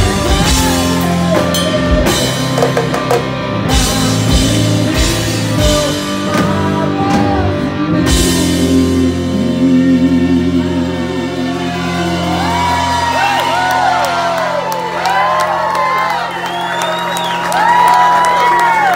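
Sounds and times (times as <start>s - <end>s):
person singing: 0.0s - 14.6s
drums: 0.0s - 18.9s
electric guitar: 0.0s - 18.9s.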